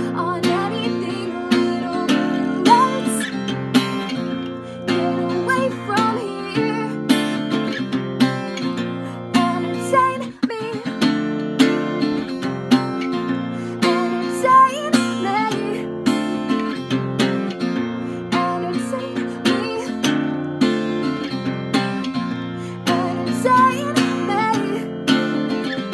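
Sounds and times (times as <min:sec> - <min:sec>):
person singing: 0:00.0 - 0:03.5, 0:04.5 - 0:07.7, 0:08.8 - 0:11.2, 0:13.2 - 0:16.6, 0:17.8 - 0:20.4, 0:22.7 - 0:25.9
acoustic guitar strumming: 0:00.0 - 0:25.9.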